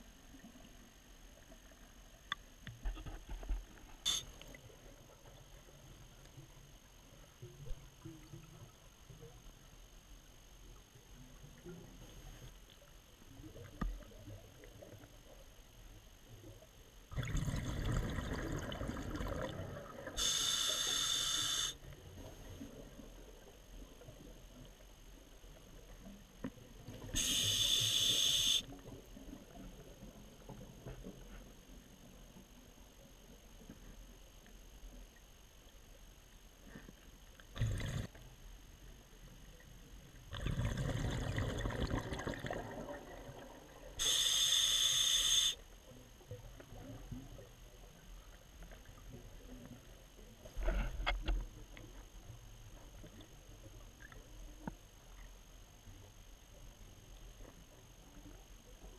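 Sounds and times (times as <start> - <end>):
faint click: 2.2 - 4.6
short burst of noise: 4.0 - 4.4
breathing gear hissing air underwater: 4.1 - 4.4, 20.2 - 21.8, 27.1 - 28.7, 44.0 - 45.6
exhaled bubbles rumbling: 17.1 - 20.2, 37.5 - 38.2, 40.3 - 44.0.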